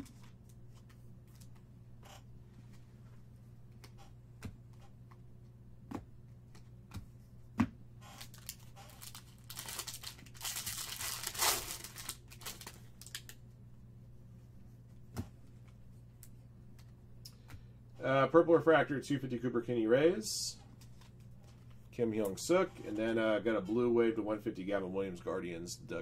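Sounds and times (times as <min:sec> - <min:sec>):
foil wrapper crinkling and tearing: 0:08.2 - 0:13.4.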